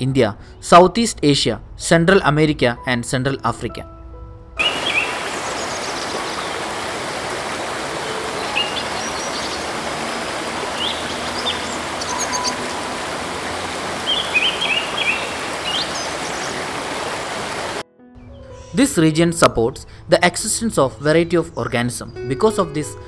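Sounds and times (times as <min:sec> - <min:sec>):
stream rushing over rocks: 0:04.6 - 0:17.8
birds chirping: 0:04.6 - 0:19.0.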